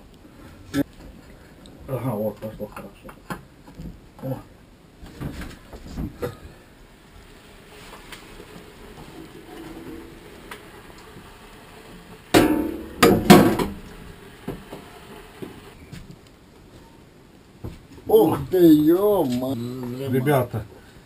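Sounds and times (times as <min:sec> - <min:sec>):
metal damper clanging: 0:12.4 - 0:13.9.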